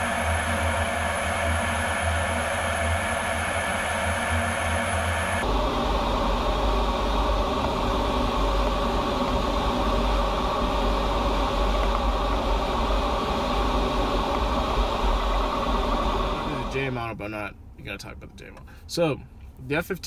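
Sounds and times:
cockpit engine and airflow noise: 0.0 - 19.6.

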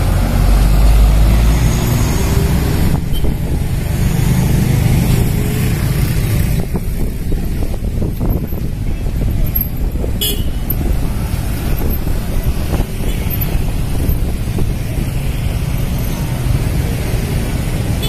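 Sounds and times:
bus engine rumble: 0.0 - 18.0
motorcycles and cars passing: 0.0 - 18.0.

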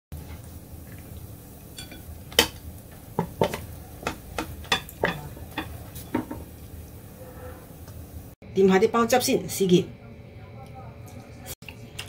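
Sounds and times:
utensil clattering against wok: 3.2 - 6.5.

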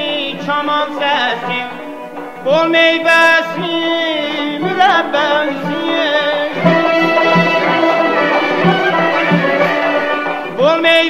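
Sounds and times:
instruments holding long notes: 0.0 - 11.0
person singing: 0.0 - 11.0
steady drum beat: 4.6 - 10.8.

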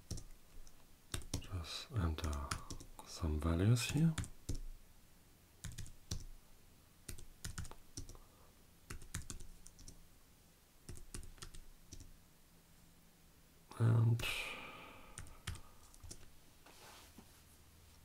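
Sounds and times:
computer keyboard typing: 0.0 - 1.5, 2.2 - 2.9, 3.9 - 4.7, 5.6 - 6.3, 7.1 - 8.2, 8.9 - 10.0, 10.9 - 12.1, 15.2 - 16.3.

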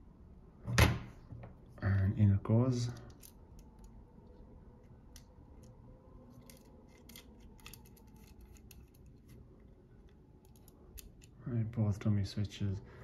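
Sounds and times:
small parts clicking and tapping: 5.1 - 9.4, 10.0 - 11.4.

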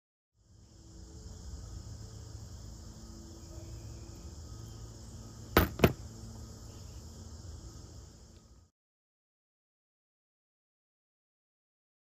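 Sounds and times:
insect chorus: 0.4 - 8.7.

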